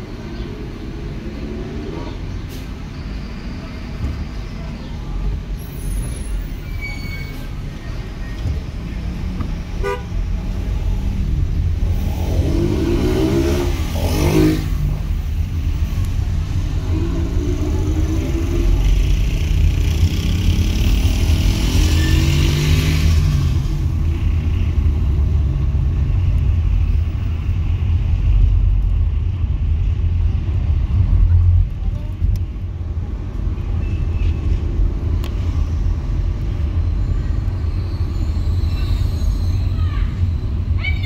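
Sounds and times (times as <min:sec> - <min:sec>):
road and wind rumble: 0:00.0 - 0:41.0
car engine accelerating: 0:10.5 - 0:26.2.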